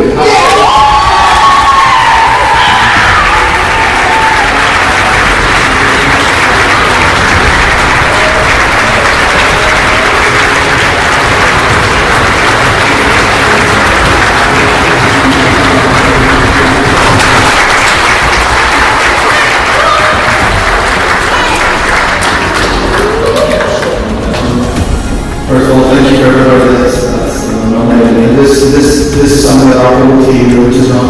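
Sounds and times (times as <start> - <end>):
audience applauding: 0.4 - 25.1.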